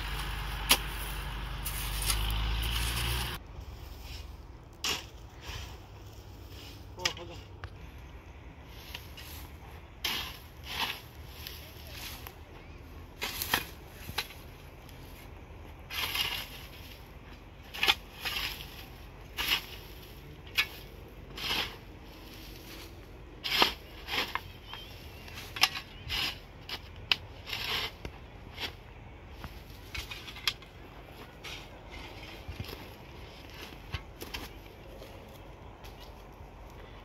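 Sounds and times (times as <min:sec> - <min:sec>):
spade scraping stony ground: 0:00.0 - 0:07.2, 0:08.6 - 0:37.0.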